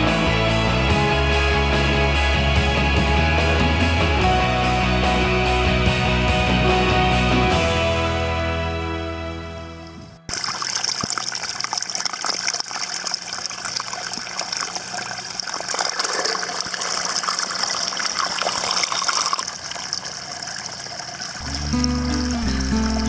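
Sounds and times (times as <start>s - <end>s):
creek trickling over stones: 10.3s - 23.0s.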